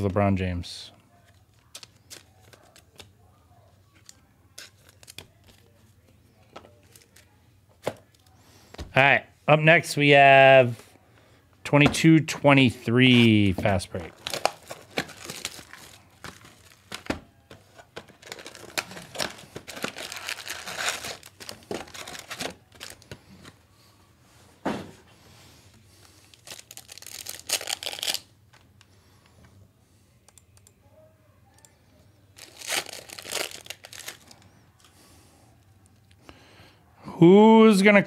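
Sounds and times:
plastic wrapping crinkling: 14.0 - 23.6, 26.0 - 28.3, 32.4 - 34.5.

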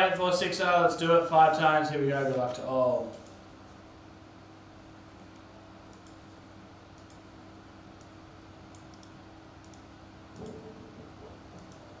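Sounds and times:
steady low hum: 0.0 - 12.0
computer mouse clicks: 5.2 - 6.2, 6.9 - 7.2, 8.0 - 12.0.

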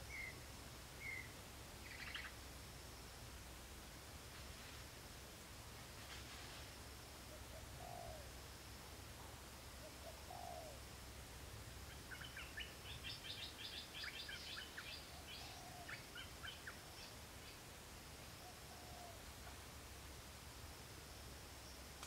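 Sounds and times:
low falling bird calls: 0.0 - 0.4, 1.0 - 2.4
low steady hum: 0.0 - 22.0.

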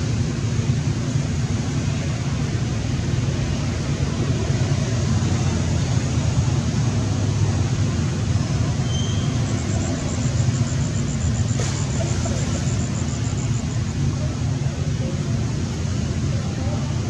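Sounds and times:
low outdoor rumble: 0.0 - 17.0
high-pitched pulsing trill: 8.6 - 14.7.

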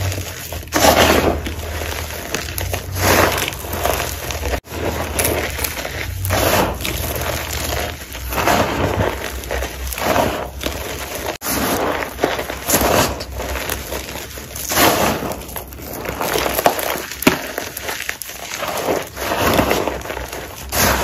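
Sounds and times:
hands crunching chalk: 0.0 - 21.0.

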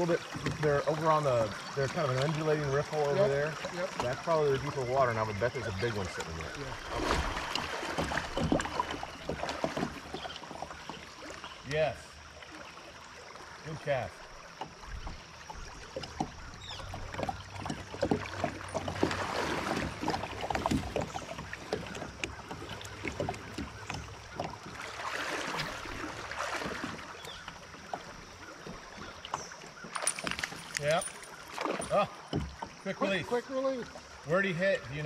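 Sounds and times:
water splashing against kayak hull: 0.0 - 35.0
knocks on kayak hull: 31.6 - 32.8.

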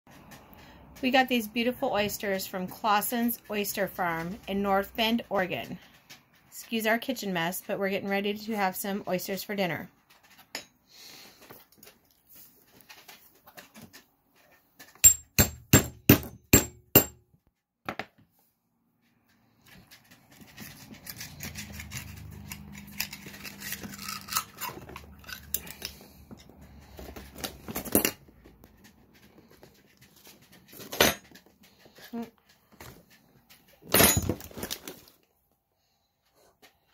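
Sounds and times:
knife scraping shell: 20.4 - 26.1.

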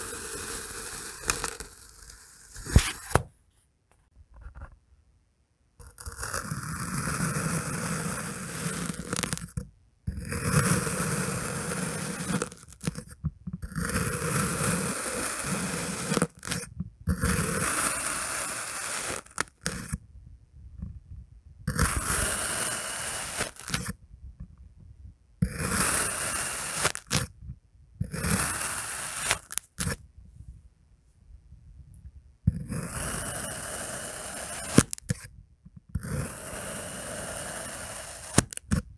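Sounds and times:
knife slicing through sand: 2.5 - 3.2.

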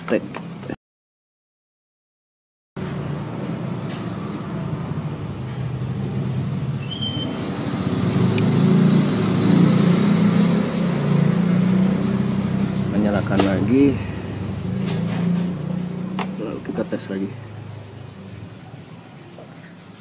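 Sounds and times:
vehicle engine running: 7.4 - 18.6.

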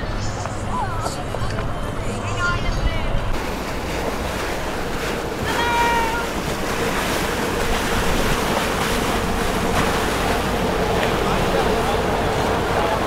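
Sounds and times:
boat engine hum: 0.0 - 13.0
water rushing: 0.0 - 13.0
wind buffeting: 0.0 - 13.0.

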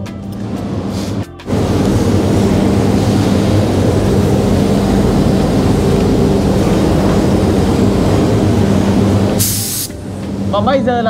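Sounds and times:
mechanical drone with low hum: 0.0 - 11.0.

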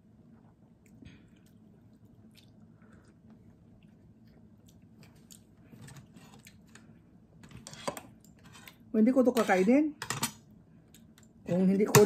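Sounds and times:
faint chewing: 0.2 - 7.1.

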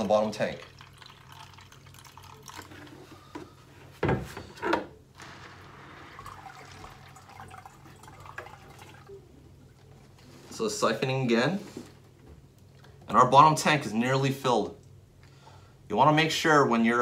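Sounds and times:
water trickling onto pebbles: 0.0 - 2.8.

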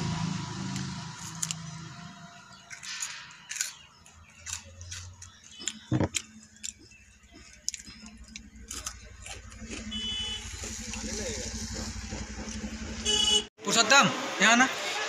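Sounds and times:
chewing chocolate bar: 2.7 - 9.9.

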